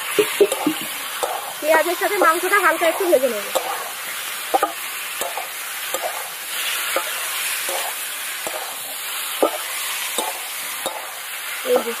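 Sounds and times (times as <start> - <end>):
chicken sizzling in a pan: 0.0 - 12.0.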